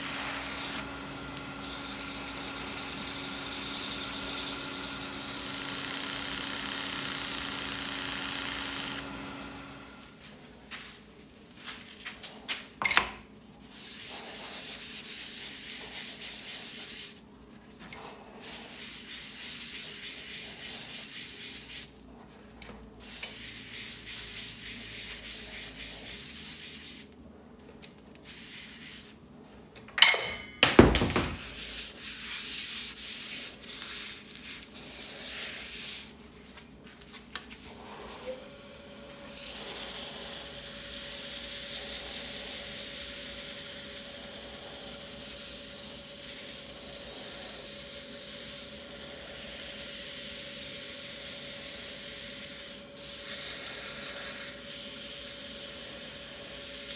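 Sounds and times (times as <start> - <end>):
sharp knocks: 30.3 - 31.8.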